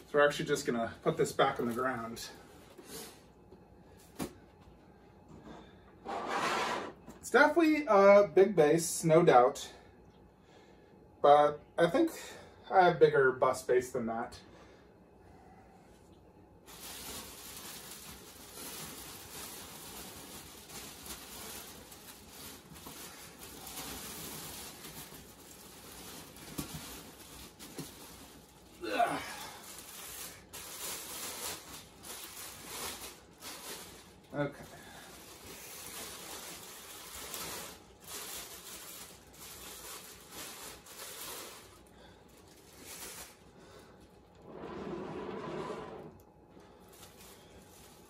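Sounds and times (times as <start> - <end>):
packaging rustling: 16.7 - 28.8, 29.4 - 43.5.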